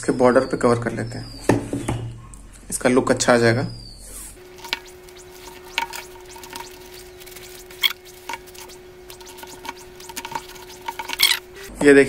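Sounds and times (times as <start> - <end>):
tape crackling and clicking: 4.4 - 11.7.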